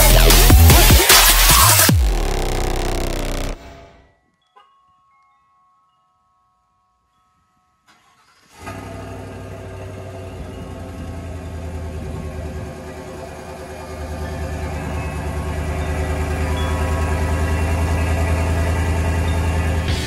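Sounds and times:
pickup truck engine starting and idling: 0:00.0 - 0:04.0, 0:07.9 - 0:20.0
brief chime: 0:04.0 - 0:08.0.

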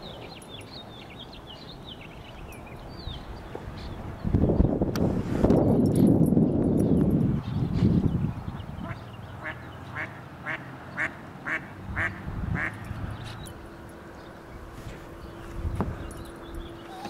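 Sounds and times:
duck quacking: 0:08.8 - 0:12.7.

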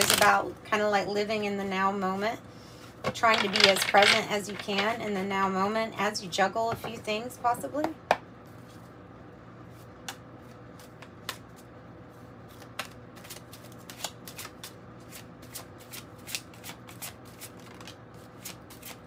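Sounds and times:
cards being shuffled: 0:10.0 - 0:11.7, 0:12.4 - 0:19.0.

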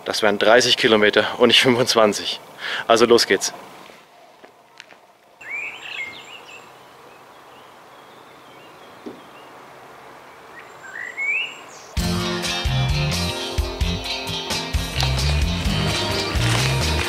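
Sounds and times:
light outdoor hiss: 0:00.0 - 0:17.0
birds chirping: 0:05.4 - 0:17.0
background music: 0:12.0 - 0:17.0.

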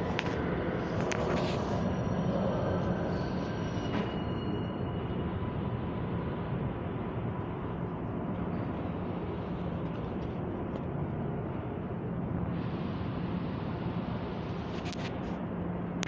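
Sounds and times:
subway train rumbling: 0:00.0 - 0:16.0.

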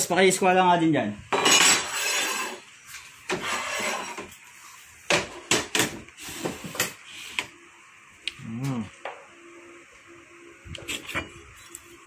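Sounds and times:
metal scraping: 0:01.4 - 0:02.6.

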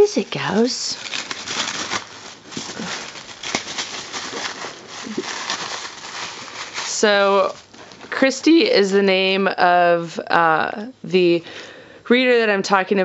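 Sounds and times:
packaging rustling and crinkling: 0:00.0 - 0:08.9.

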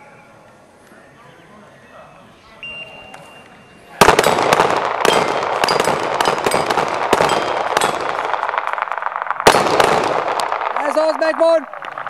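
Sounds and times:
handgun shots: 0:04.0 - 0:08.4
steel plates ringing: 0:05.0 - 0:08.4.

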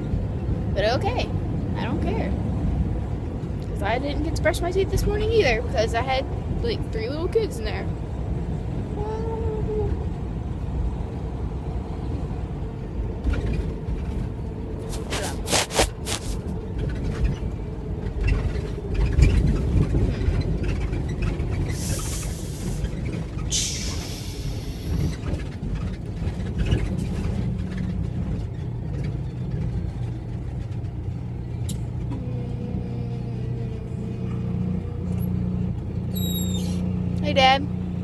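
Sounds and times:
road rumble: 0:00.0 - 0:38.0
truck engine running: 0:09.5 - 0:38.0
short air hisses: 0:21.8 - 0:22.9, 0:23.5 - 0:25.1.

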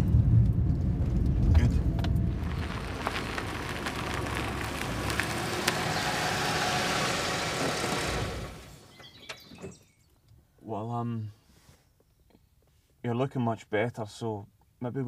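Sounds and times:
car engine running: 0:00.0 - 0:09.0
tyres crackling on gravel: 0:00.0 - 0:09.8.

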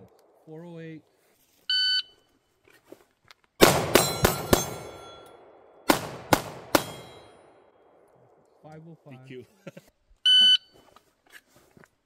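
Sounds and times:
pistol shots: 0:03.6 - 0:08.0
steel targets ringing: 0:03.9 - 0:05.5, 0:06.8 - 0:07.5.

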